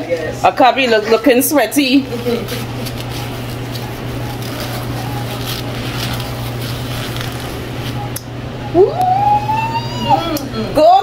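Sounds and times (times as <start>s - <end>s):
low hum of room equipment: 0.0s - 11.0s
tissue rustling: 1.6s - 8.1s
woman shouting woo: 8.7s - 11.0s.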